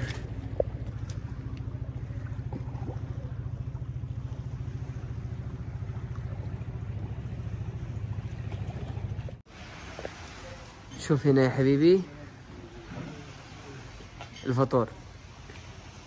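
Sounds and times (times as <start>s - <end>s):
low engine drone: 0.0s - 10.5s.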